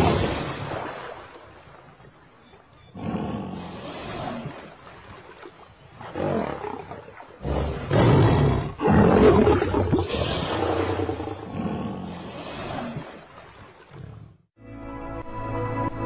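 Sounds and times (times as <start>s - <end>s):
lion growling and roaring: 2.9s - 4.6s, 6.0s - 13.1s.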